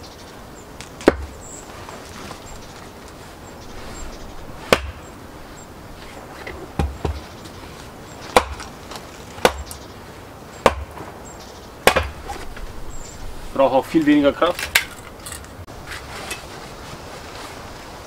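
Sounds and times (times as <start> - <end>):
wood splitting strikes: 0.8 - 1.4, 4.7 - 5.0, 8.3 - 9.8, 10.6 - 11.1, 11.8 - 12.5.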